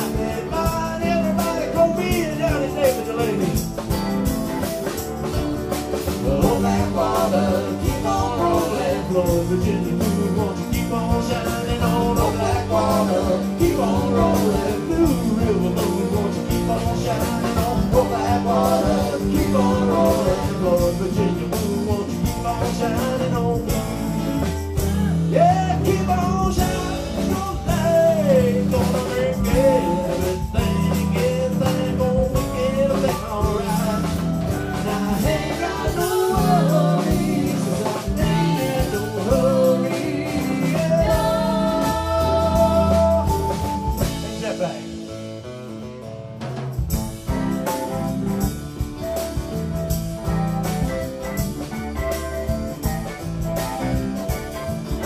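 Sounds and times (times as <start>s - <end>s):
person singing: 0.0s - 3.6s, 6.1s - 44.7s
rock band playing: 0.0s - 55.0s.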